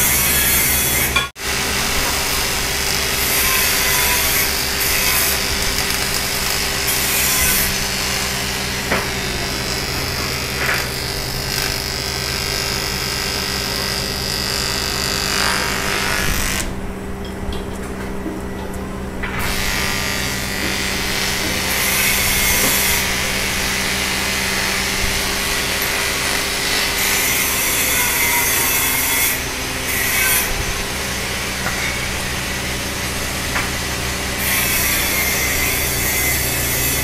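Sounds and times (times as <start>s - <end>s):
arc welding hiss: 0.1s - 16.7s.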